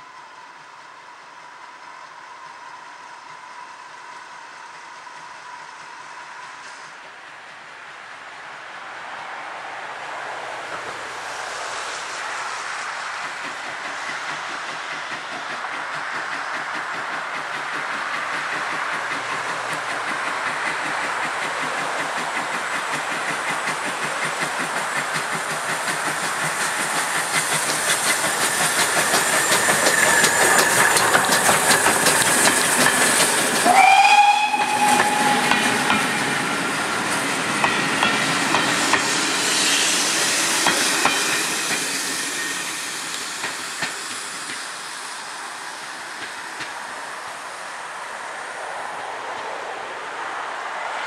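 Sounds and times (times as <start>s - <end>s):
steam locomotive exhaust chuffs: 11.3s - 48.3s
wheel clatter on rail joints: 13.2s - 33.8s, 34.6s - 47.4s
steam whistle: 33.6s - 36.6s.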